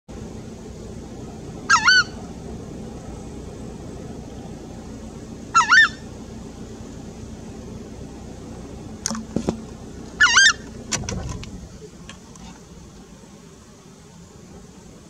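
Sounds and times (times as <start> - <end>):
bird two-note calls: 1.6 - 2.3, 5.5 - 6.2, 10.2 - 10.7.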